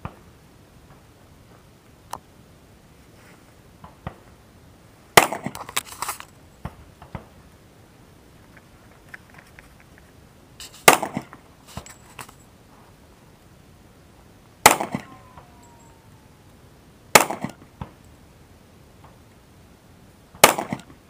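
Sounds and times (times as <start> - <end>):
loud pistol shots: 5.2 - 5.6, 10.8 - 11.4, 14.6 - 15.6, 17.1 - 17.6, 20.4 - 20.9
faint cracks and echoes: 14.7 - 16.6.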